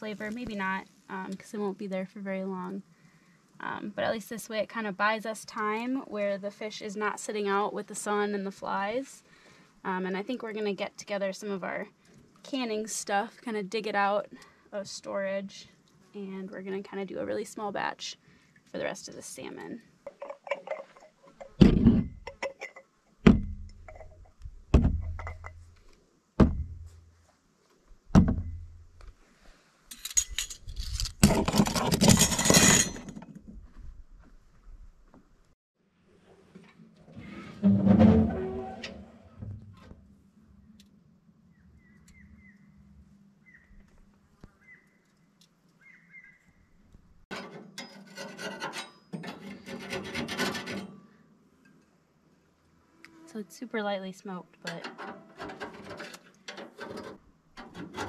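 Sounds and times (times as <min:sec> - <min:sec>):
rough scraping and rasping: 0:30.4 - 0:33.2, 0:37.2 - 0:39.8, 0:47.3 - 0:51.0, 0:54.8 - 0:58.0.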